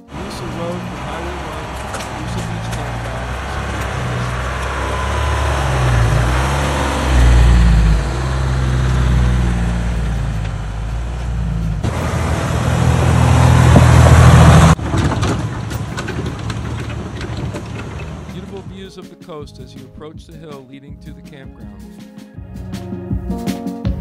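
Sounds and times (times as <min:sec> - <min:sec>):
diesel engine running: 0:00.0 - 0:18.9.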